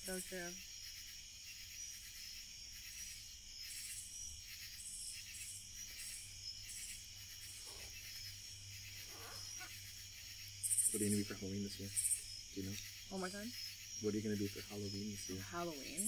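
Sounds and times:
insect pulsed calls: 0.0 - 16.0
insects trilling: 0.0 - 16.0.

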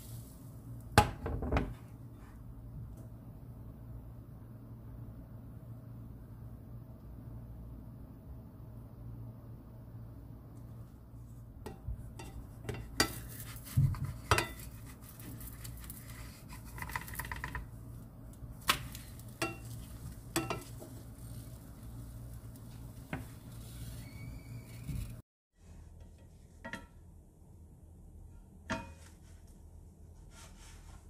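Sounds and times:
wooden spatula scraping frying pan: 11.7 - 17.6, 18.9 - 25.2.

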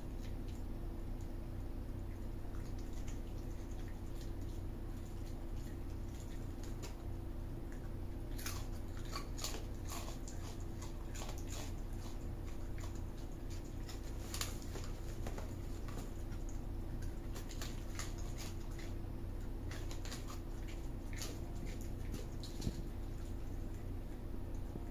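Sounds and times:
steady low hum: 0.0 - 24.9
raccoon crunching snacks: 1.9 - 24.8.

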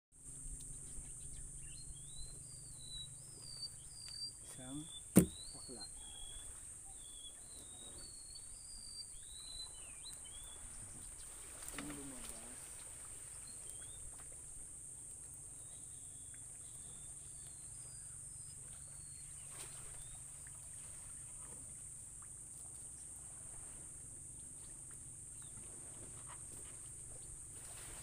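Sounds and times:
faint bird chirps: 0.5 - 14.3, 15.6 - 22.3.

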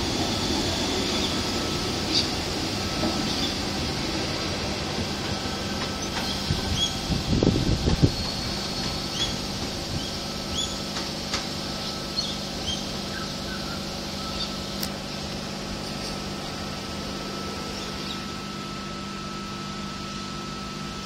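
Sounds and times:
electric train humming: 0.0 - 21.0
faint steady whine: 0.0 - 21.0
bird chirps: 12.2 - 14.7.

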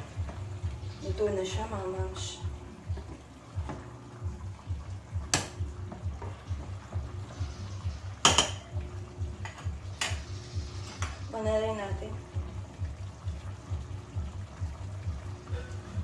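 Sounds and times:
utensil clinking against pot: 8.2 - 8.8.

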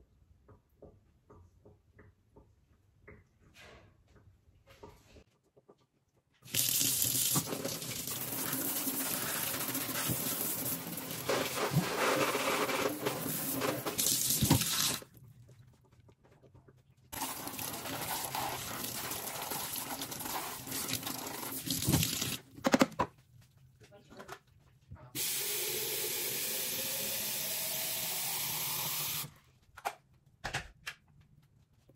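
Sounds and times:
water splashing from faucet sprayer: 6.5 - 15.1, 17.2 - 22.4, 25.2 - 29.3.

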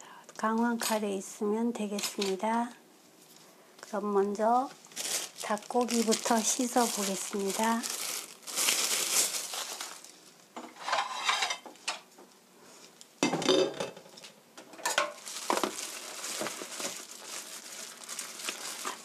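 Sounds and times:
plastic glove crinkling: 1.9 - 11.1, 14.9 - 19.0.

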